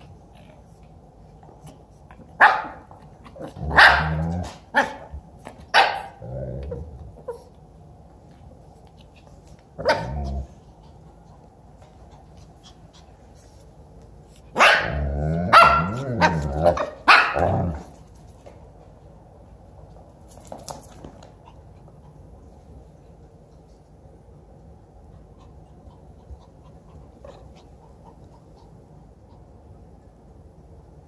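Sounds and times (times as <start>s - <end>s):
dog barking: 2.4s - 2.8s, 3.7s - 4.2s, 5.7s - 6.2s, 14.6s - 17.6s
dogs growling: 3.2s - 4.7s, 6.1s - 7.4s, 9.8s - 10.6s, 14.8s - 18.0s.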